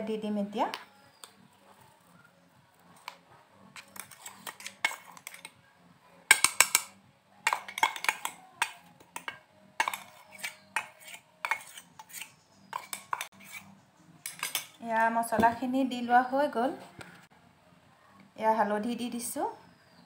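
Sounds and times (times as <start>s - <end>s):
spoon and jar scraping steel bowl: 3.0s - 5.6s, 6.3s - 14.8s.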